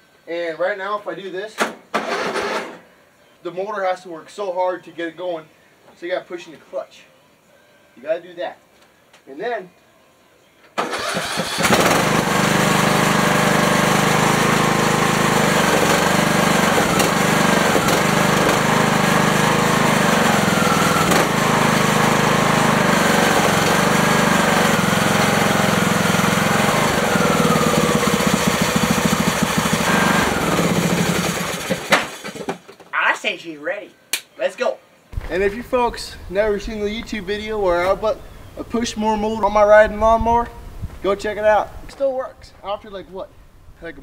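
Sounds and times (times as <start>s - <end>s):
engine cranking: 10.8s - 32.5s
mower engine idling: 10.8s - 32.5s.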